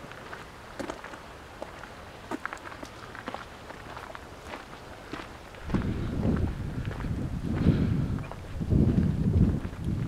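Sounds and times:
wind buffeting microphone: 4.4s - 10.0s.

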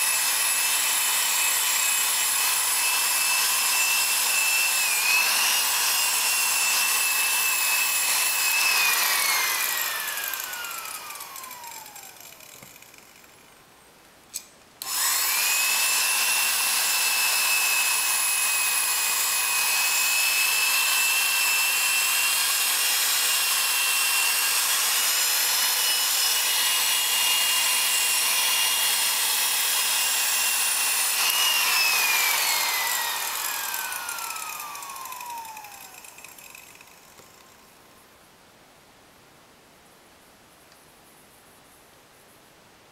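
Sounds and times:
buffing wheel high whine: 7.3s - 12.8s.

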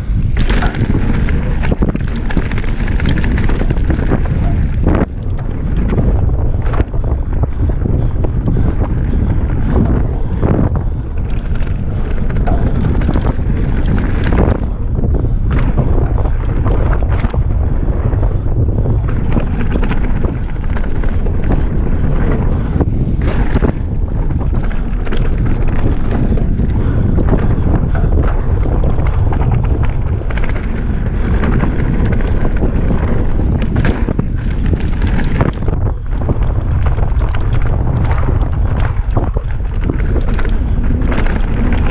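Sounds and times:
bike knocks and rattles: 0.0s - 41.9s
bike rumbling on dirt trail: 0.0s - 41.9s
wind rushing over microphone: 0.0s - 41.9s.

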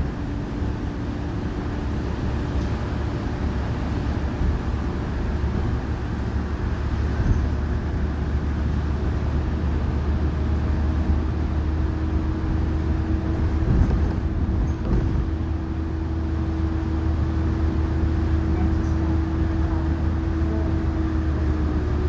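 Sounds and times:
bus engine droning: 0.0s - 22.0s
bus bump: 13.3s - 15.6s.

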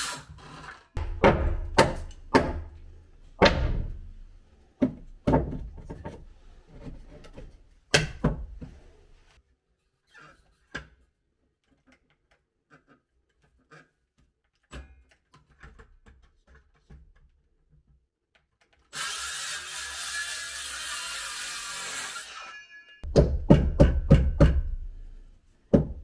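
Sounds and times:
circular saw cutting wood: 18.9s - 23.0s.

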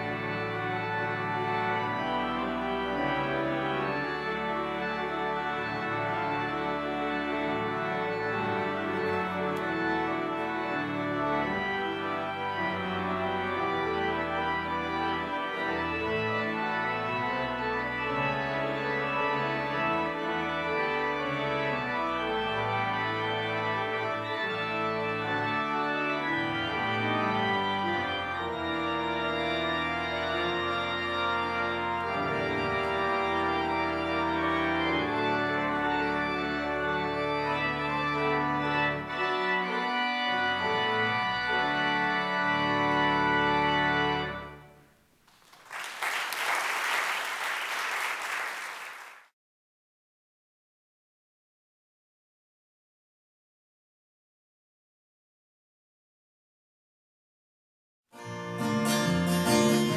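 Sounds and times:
church organ playing chords: 0.0s - 44.8s, 58.2s - 59.9s
applause: 45.2s - 49.3s.

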